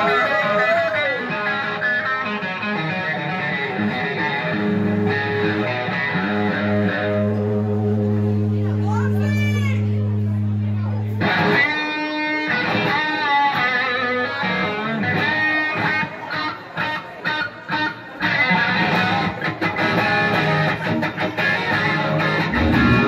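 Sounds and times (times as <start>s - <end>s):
electric guitar rock riff: 0.0s - 8.6s, 10.1s - 23.0s.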